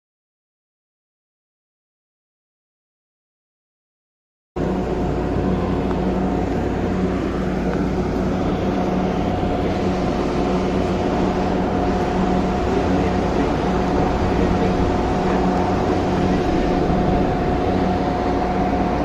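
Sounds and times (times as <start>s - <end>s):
electrical hum of train: 4.6s - 19.0s
train running noise: 4.6s - 19.0s.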